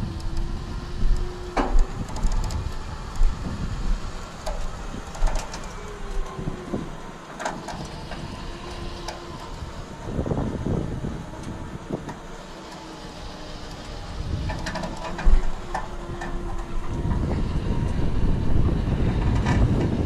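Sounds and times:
wind buffeting microphone: 0.0s - 20.0s
metal creak: 12.1s - 20.0s.

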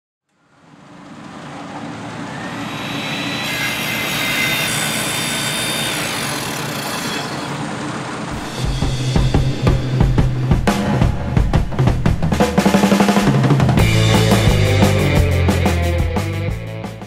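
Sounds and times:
faint high whistle: 2.2s - 3.6s
low hum: 8.1s - 12.5s
rushing rumbling noise: 8.1s - 15.7s.

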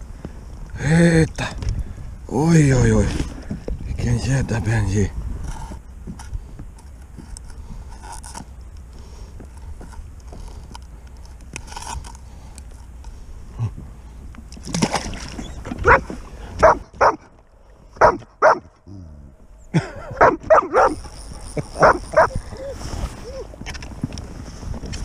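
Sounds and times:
dog barking and yipping: 15.8s - 17.2s, 18.0s - 18.7s, 20.2s - 21.0s, 21.8s - 22.4s.

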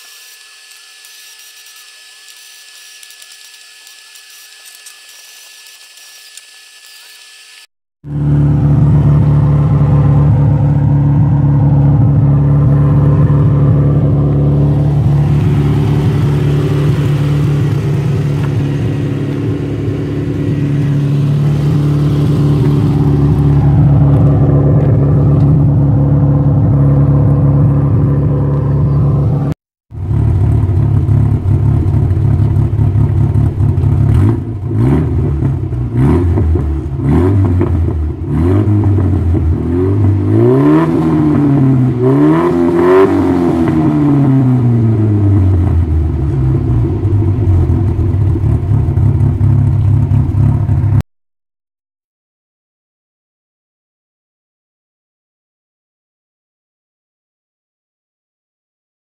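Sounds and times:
engine revving: 0.0s - 51.0s
van engine idling: 8.1s - 34.1s.

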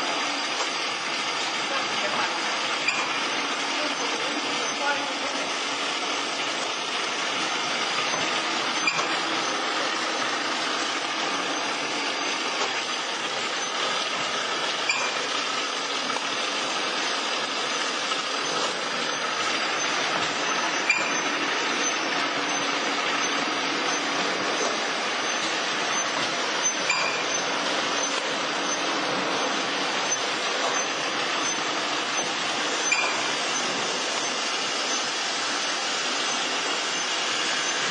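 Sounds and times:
machine clatter and hum: 0.0s - 37.9s.

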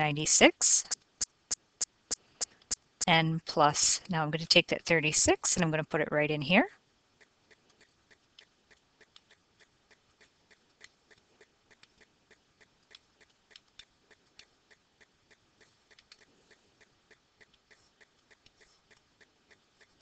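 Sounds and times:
faint even ticking: 7.2s - 20.0s.

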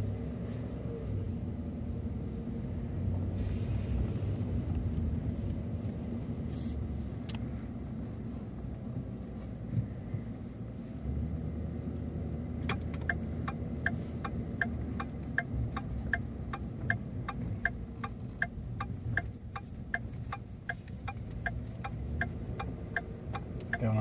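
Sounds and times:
truck engine low rumble: 0.0s - 24.0s
turn signal ticking: 11.3s - 24.0s.

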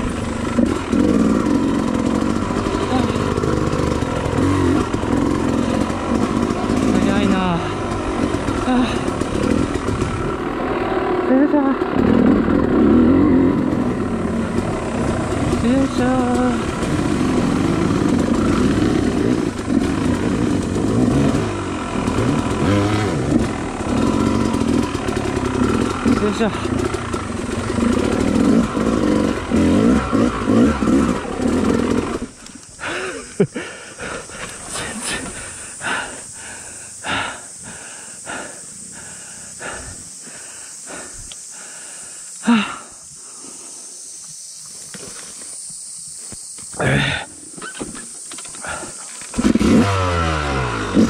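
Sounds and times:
dirt bike engines revving: 0.0s - 44.5s, 45.4s - 51.0s
voiced gasp: 32.8s - 43.8s, 46.8s - 47.4s, 48.6s - 49.1s
person panting heavily: 32.8s - 44.0s, 48.5s - 49.2s.

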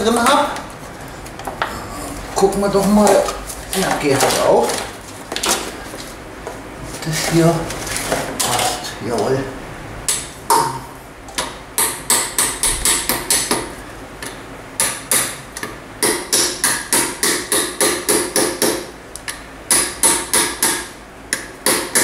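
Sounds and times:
hammer striking metal: 11.4s - 13.6s, 16.0s - 18.8s.

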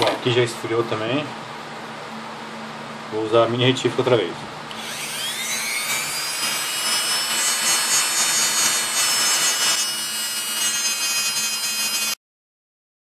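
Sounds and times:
rotary tool sanding whine: 4.7s - 12.2s.

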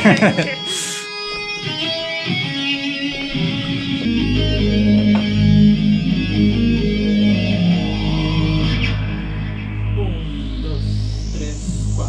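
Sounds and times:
electric guitar playing: 0.0s - 12.0s
sustained bass notes: 3.3s - 12.0s.

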